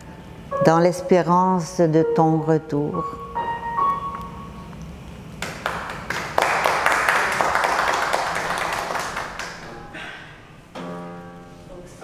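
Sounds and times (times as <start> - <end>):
small audience applauding: 5.4 - 10.0.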